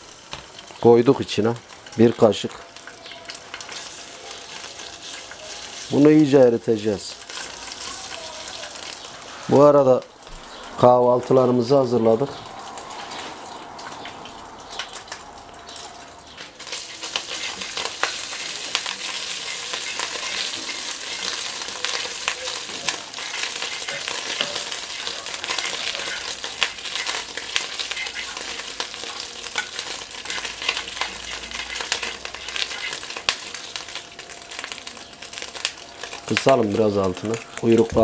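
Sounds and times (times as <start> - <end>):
fat sizzling in a frying pan: 0.0 - 38.0
fork stirring in pan: 16.6 - 33.6.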